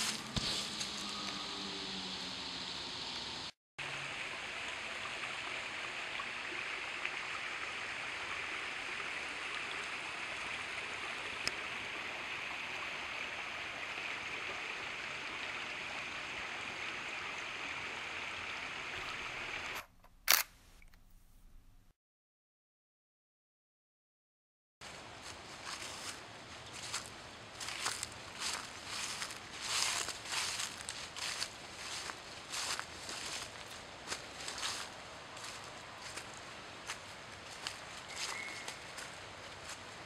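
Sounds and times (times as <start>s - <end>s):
creek water trickling over stones: 3.8s - 19.7s, 24.8s - 40.0s
sharp click: 19.8s - 21.7s.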